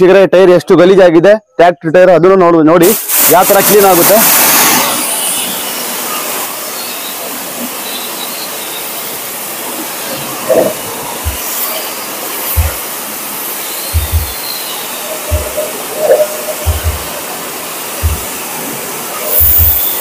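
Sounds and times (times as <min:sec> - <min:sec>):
pressure washer spray hissing: 0:02.8 - 0:20.0
low thumps: 0:10.5 - 0:11.5, 0:12.5 - 0:12.9, 0:13.9 - 0:14.4, 0:15.1 - 0:18.6.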